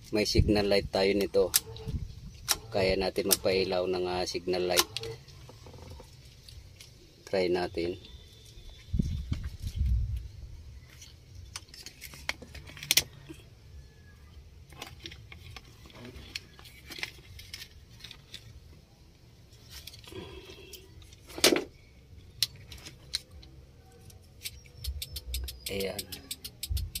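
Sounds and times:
clicks and taps of wiring: 0:22.3 - 0:27.0.

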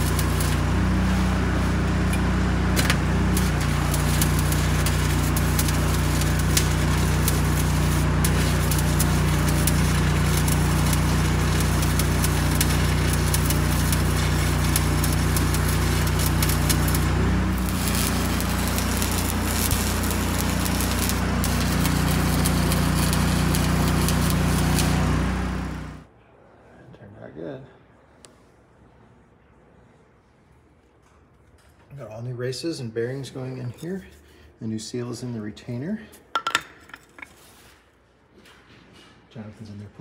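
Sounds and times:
arc welding crackle: 0:00.0 - 0:26.1
low hum: 0:00.0 - 0:26.1.

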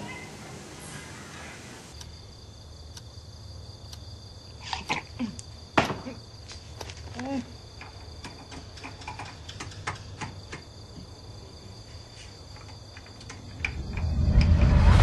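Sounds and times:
crickets chirping: 0:00.0 - 0:15.0
rush of noise: 0:13.5 - 0:15.0.

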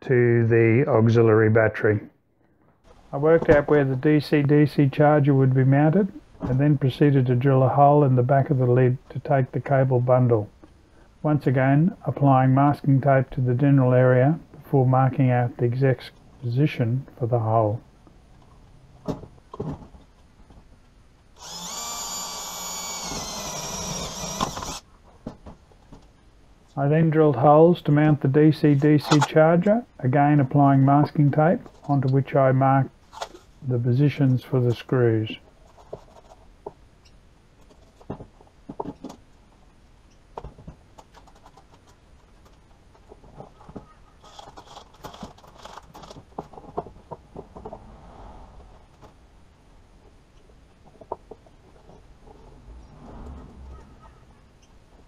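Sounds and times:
cordless drill whine: 0:21.4 - 0:24.8.

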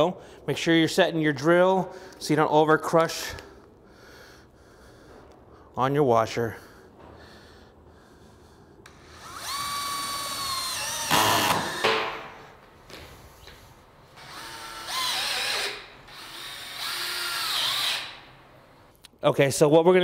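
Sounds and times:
cordless drill motor whine: 0:08.9 - 0:11.9, 0:14.2 - 0:18.3.

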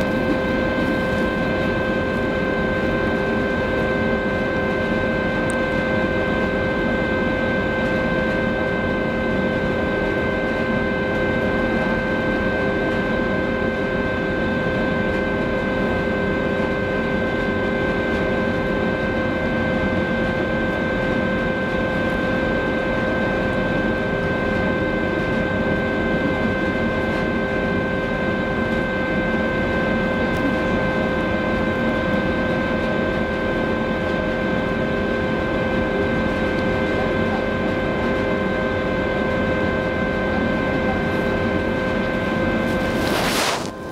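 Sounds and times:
ship engines humming: 0:00.0 - 0:03.8.

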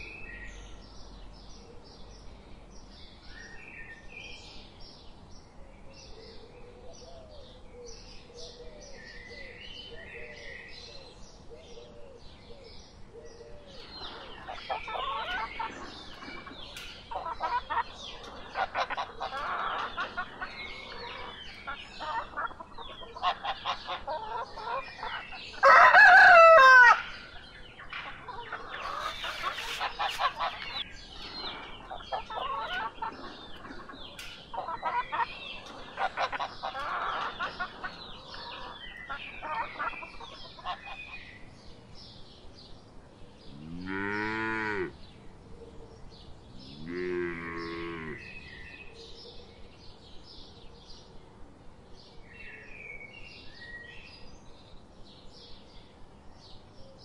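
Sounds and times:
chickens clucking: 0:13.8 - 0:41.3
rooster crowing: 0:25.6 - 0:27.2.

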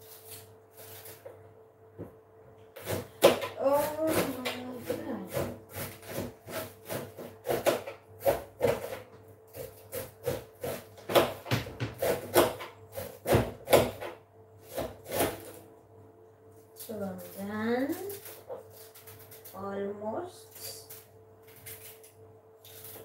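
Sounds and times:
knife chopping cabbage on board: 0:02.8 - 0:15.6.

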